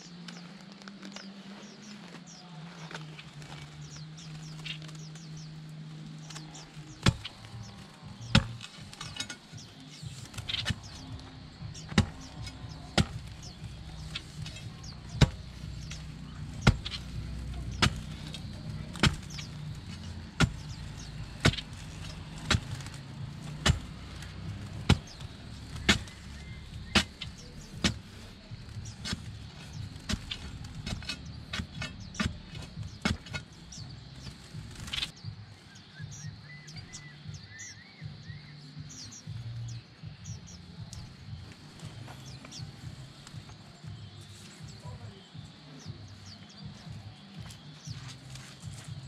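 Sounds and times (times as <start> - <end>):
spade striking dry soil: 6.2 - 35.2.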